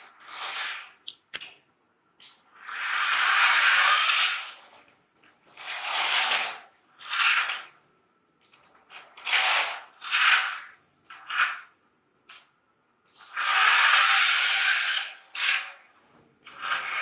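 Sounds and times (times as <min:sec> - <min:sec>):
toy car motor whirring: 0:02.6 - 0:04.8, 0:05.5 - 0:07.7, 0:09.0 - 0:11.7, 0:13.2 - 0:15.8, 0:16.5 - 0:17.0.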